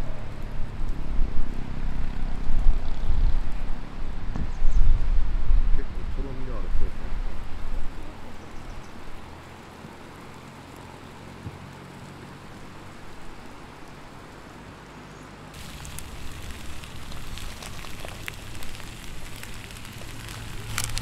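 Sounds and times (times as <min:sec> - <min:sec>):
noodles sizzling in griddle pan: 0:15.6 - 0:21.0.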